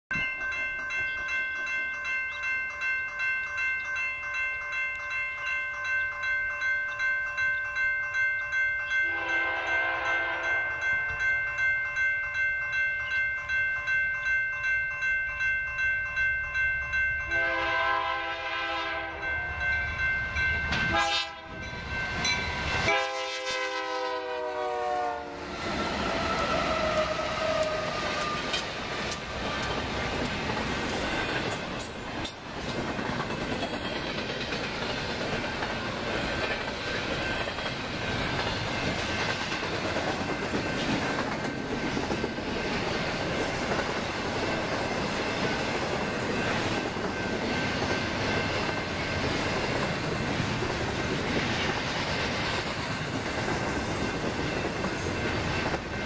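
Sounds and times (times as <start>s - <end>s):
crossing bell ringing: 0.1s - 56.0s
train horn blasts: 9.0s - 10.6s, 17.3s - 19.7s, 20.8s - 21.7s, 22.8s - 28.6s
train rumbling past: 16.1s - 56.0s.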